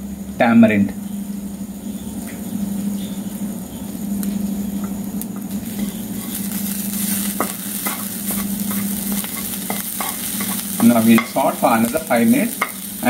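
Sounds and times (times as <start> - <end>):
steady low hum: 0.0 - 13.0
food sizzling in oil: 0.1 - 13.0
spatula scraping pan: 4.8 - 13.0.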